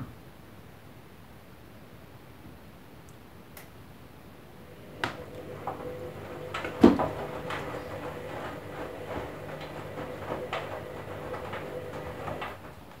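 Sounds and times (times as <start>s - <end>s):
washing machine motor hum: 4.4s - 13.0s
laundry tumbling and sloshing: 4.5s - 13.0s
washing machine click: 4.7s - 12.9s.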